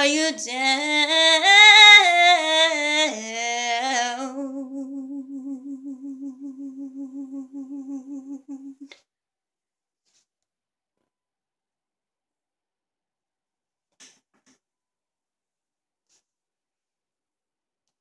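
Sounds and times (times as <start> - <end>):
woman singing high note: 0.0 - 8.9
woman humming: 1.9 - 9.0.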